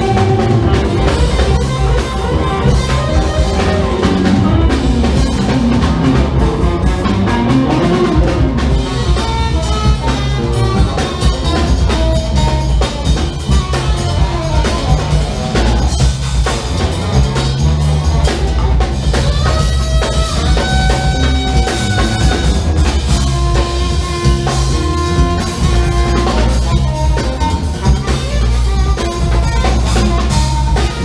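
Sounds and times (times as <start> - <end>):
drum kit beat: 0.0 - 31.0
electric bass groove: 0.0 - 31.0
electric guitar: 0.0 - 31.0
saxophone long held notes: 0.0 - 31.0.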